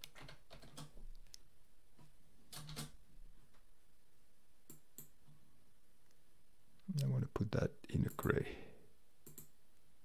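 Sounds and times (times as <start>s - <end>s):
mouse clicks: 4.6s - 5.2s, 9.2s - 9.6s.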